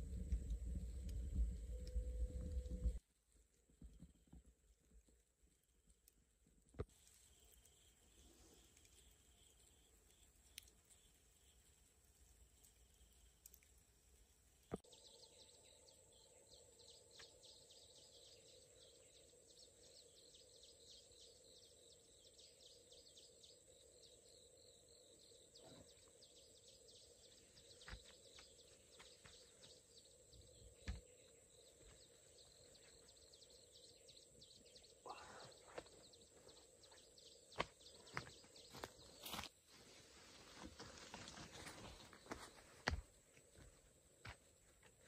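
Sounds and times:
steady low hum: 0.0s - 3.0s.

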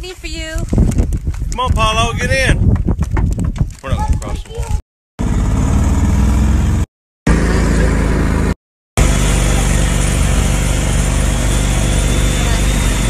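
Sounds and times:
wind rumbling on microphone: 0.0s - 4.8s
off-road vehicle engine: 5.2s - 13.0s.

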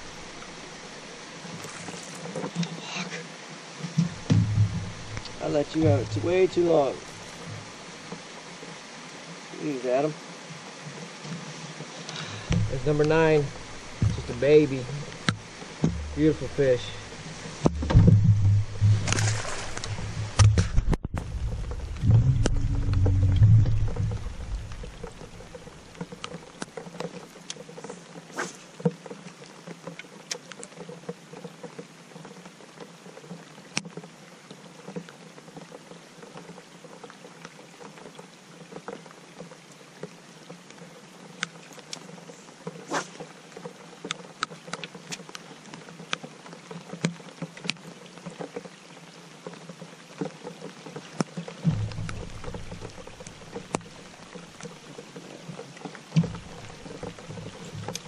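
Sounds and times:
rain pattering on water: 0.0s - 58.0s
drips and taps: 3.8s - 6.6s, 12.5s - 27.6s, 51.1s - 54.8s
low rumble: 4.1s - 6.6s, 12.5s - 26.0s, 51.7s - 54.2s.

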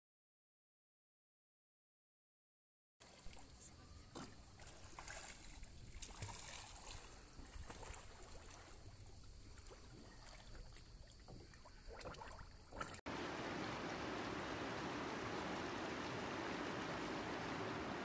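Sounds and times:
water lapping against boat hull: 3.1s - 13.0s.

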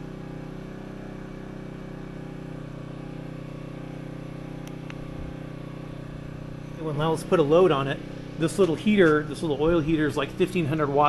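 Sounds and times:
generator engine humming: 0.0s - 11.0s.

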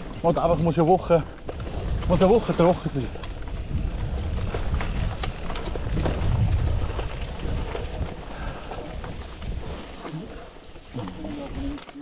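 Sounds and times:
bike chain and frame clattering: 0.0s - 12.0s
bike tyres rumbling on dirt: 0.0s - 12.0s.

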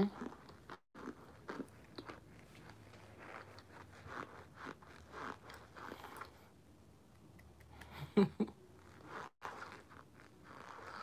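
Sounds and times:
person chewing crunchy food: 0.0s - 6.5s, 8.9s - 11.0s.

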